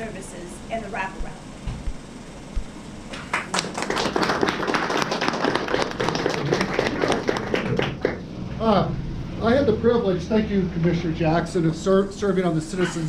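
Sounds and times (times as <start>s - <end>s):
audience applauding: 3.1s - 8.2s.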